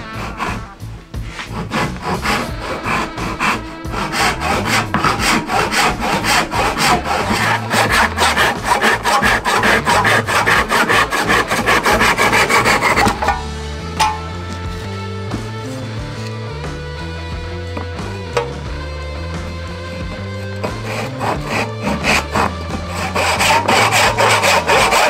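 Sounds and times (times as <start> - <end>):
hand saw cutting wood: 0.0 - 14.7, 19.4 - 25.0.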